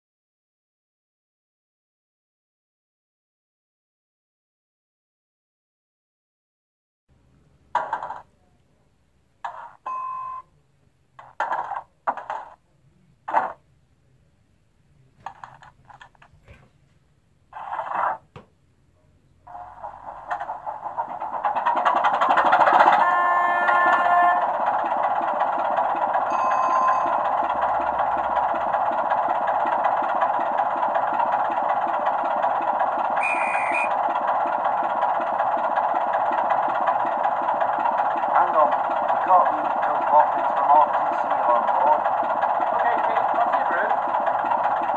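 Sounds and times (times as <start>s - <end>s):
model diesel engine idling: 19.5s - 44.9s
steady bell-like tone: 26.3s - 27.3s.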